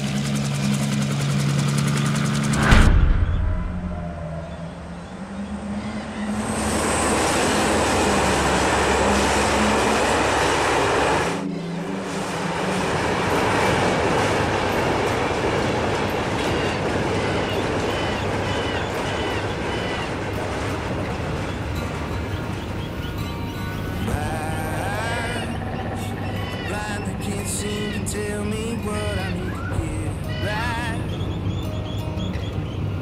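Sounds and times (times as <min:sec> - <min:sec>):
distant train rumble: 0:00.0 - 0:33.0
train wheels clacking on rails: 0:12.0 - 0:29.1.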